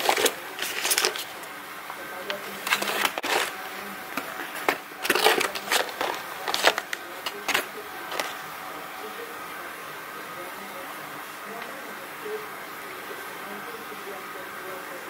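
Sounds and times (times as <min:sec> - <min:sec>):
packaging rustling and crinkling: 0:00.0 - 0:01.6, 0:02.2 - 0:08.4.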